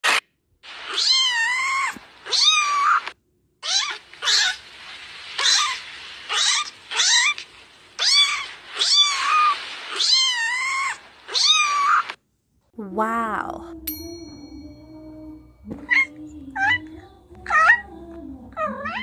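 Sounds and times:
kitten mewing: 0.8s - 4.6s.

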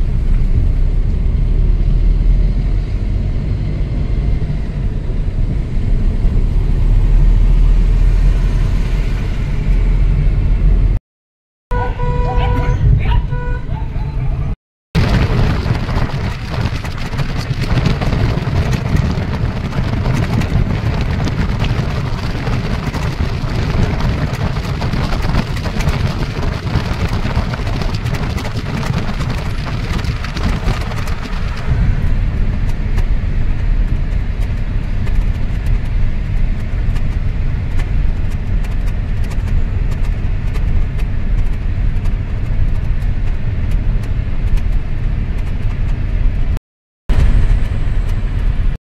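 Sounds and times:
car wind and road noise: 0.0s - 11.0s, 11.7s - 48.8s.

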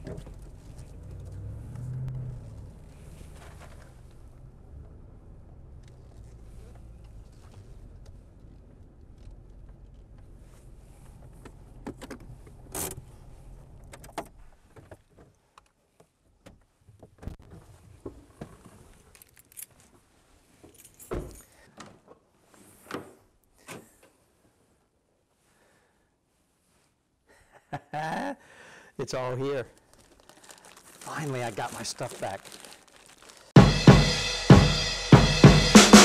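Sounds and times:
keys jangling: 19.1s - 19.9s, 20.7s - 21.6s.

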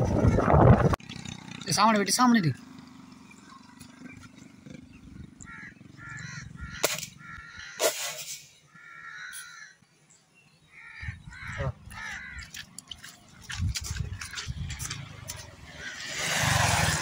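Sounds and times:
crows cawing: 5.2s - 7.9s, 8.7s - 9.8s, 10.7s - 13.1s
sharp cracks: 6.8s - 8.5s.

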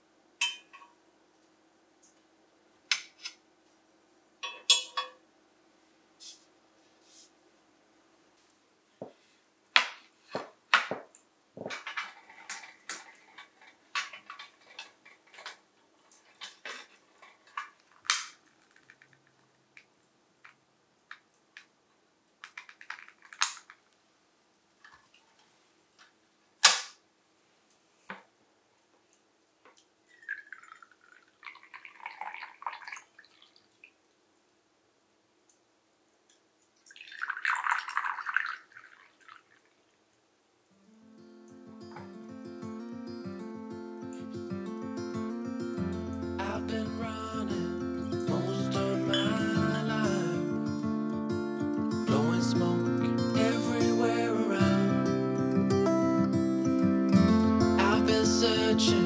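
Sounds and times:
dishes and glasses clinking: 0.4s - 0.9s, 4.4s - 5.2s
tea pouring into glass cup: 30.1s - 33.7s, 36.8s - 39.7s.

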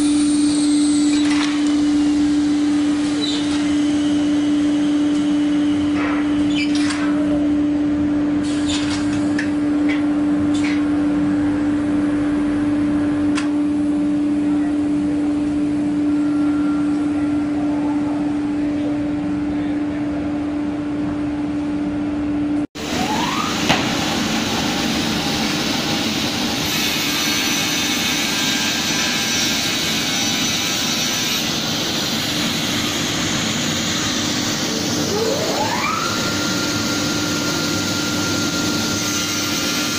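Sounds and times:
panel saw running: 22.8s - 39.9s
saw cutting with rising whine: 22.8s - 39.9s.

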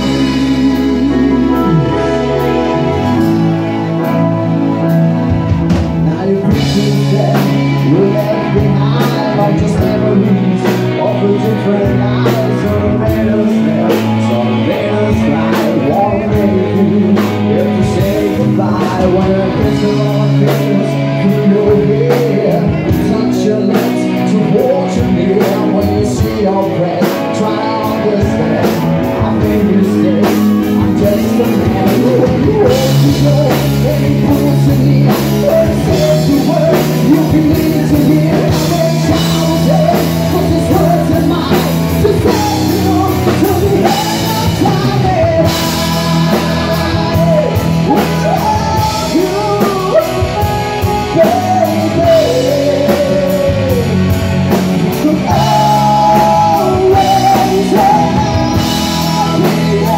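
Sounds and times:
man singing into microphone: 0.0s - 59.9s
rock band playing ballad: 0.0s - 59.9s.

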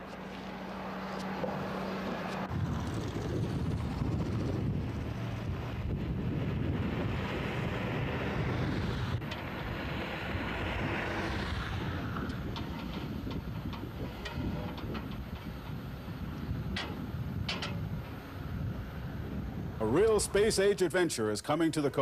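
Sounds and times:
vehicle passing: 0.0s - 15.9s
road traffic: 0.0s - 22.0s
wind on microphone: 2.1s - 20.7s.

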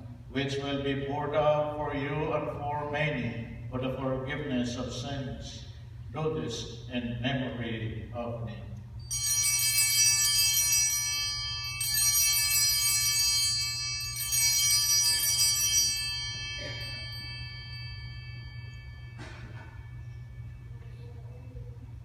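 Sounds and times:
altar bells jangling: 9.0s - 21.8s.

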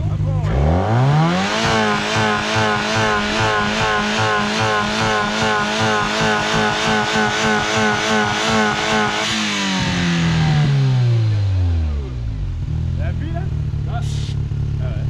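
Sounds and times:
engine revving high: 0.0s - 15.0s.

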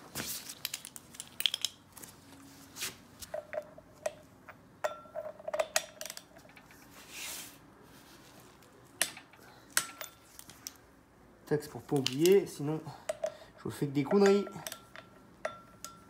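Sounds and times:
soft rustle: 1.9s - 3.4s, 6.5s - 9.0s
hand tools clinking on metal: 9.0s - 10.5s, 11.9s - 16.0s.

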